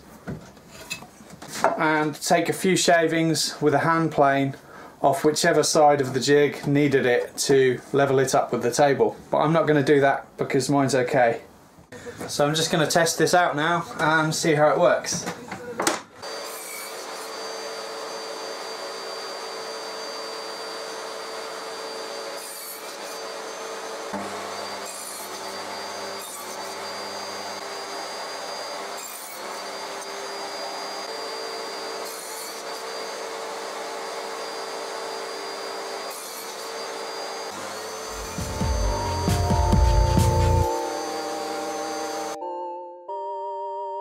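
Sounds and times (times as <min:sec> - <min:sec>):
saw blade cutting wood: 0:16.2 - 0:19.2, 0:19.8 - 0:42.4
table saw running: 0:16.2 - 0:42.4.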